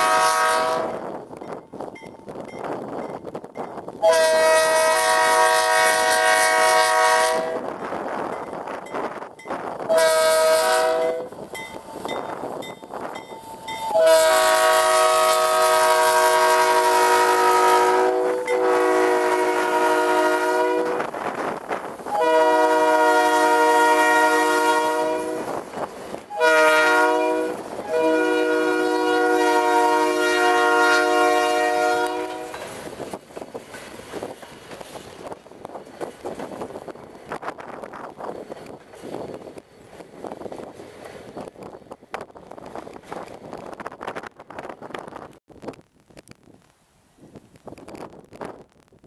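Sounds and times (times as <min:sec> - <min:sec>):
locomotive air horn blasts: 0:00.0 - 0:01.0, 0:04.0 - 0:07.6, 0:09.9 - 0:11.4, 0:13.8 - 0:21.1, 0:22.1 - 0:25.6, 0:26.3 - 0:32.6
passing train rumble: 0:00.0 - 0:45.4.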